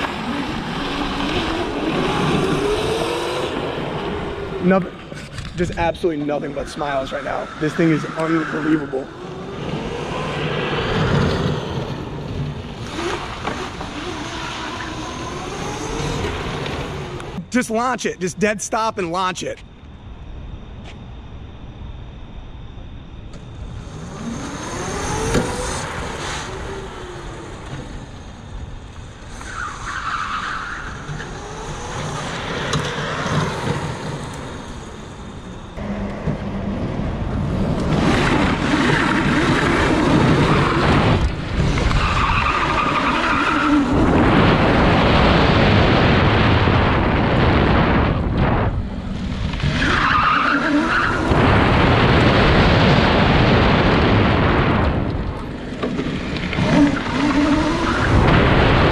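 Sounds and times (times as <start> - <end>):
electric motor whine: 21.5 - 29.4
wind on microphone: 43.8 - 49.5.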